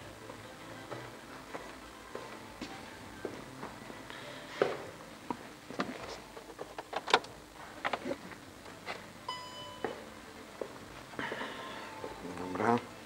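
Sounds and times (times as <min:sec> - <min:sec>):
footsteps: 0:00.2 - 0:06.3
car warning chime beep: 0:09.3 - 0:10.0.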